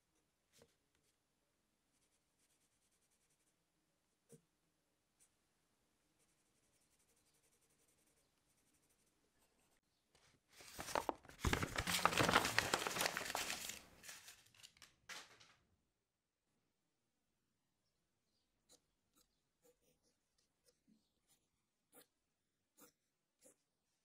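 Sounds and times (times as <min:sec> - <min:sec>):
pencil scratching on paper: 0:01.9 - 0:04.5, 0:06.1 - 0:09.9, 0:18.6 - 0:24.0
paper crackling and rustling: 0:10.5 - 0:15.5.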